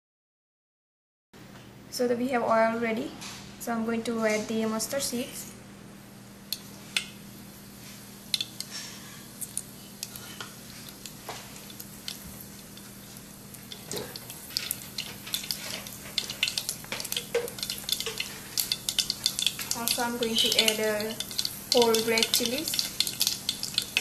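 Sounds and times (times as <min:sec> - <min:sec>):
seeds sizzling in hot oil: 0:06.6 - 0:24.0
seeds popping and crackling: 0:11.7 - 0:24.0.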